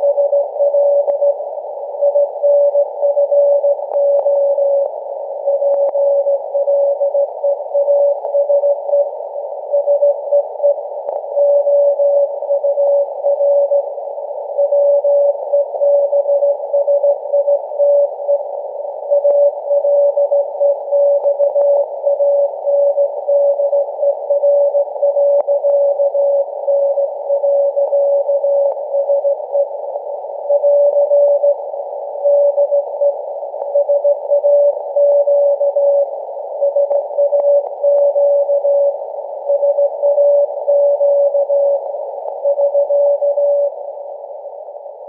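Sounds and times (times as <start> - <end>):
morse code beeps: 0.0 - 1.4, 2.0 - 9.1, 9.7 - 13.8, 14.5 - 18.5, 19.1 - 29.7, 30.5 - 41.8, 42.4 - 43.8
radio receiver hiss: 0.0 - 45.0.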